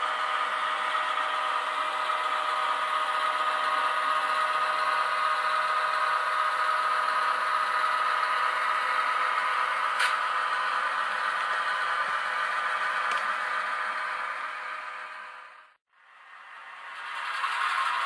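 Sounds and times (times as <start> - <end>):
model train rattling on track: 0.0 - 15.7, 16.6 - 18.0
model diesel engine sound: 0.0 - 18.0.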